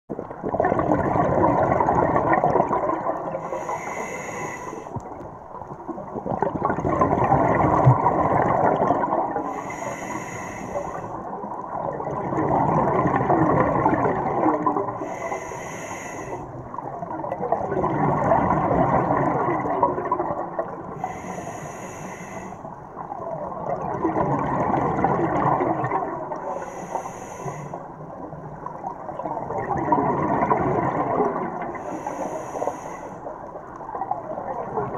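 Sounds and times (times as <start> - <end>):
bubbling exhaust underwater: 0.1 - 34.9
regulator inhalation hiss: 3.4 - 5.0, 9.4 - 11.2, 15.0 - 16.6, 21.0 - 22.7, 26.5 - 27.9, 31.8 - 33.3.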